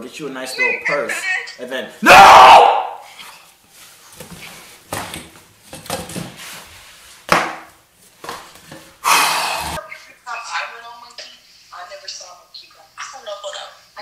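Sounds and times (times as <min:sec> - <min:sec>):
wicker chair bumping and rustling: 0:04.0 - 0:06.7.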